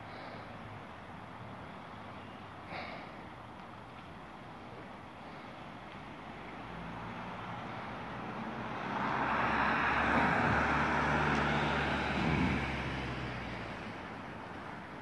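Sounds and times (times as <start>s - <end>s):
vehicle passing by: 6.2s - 15.0s.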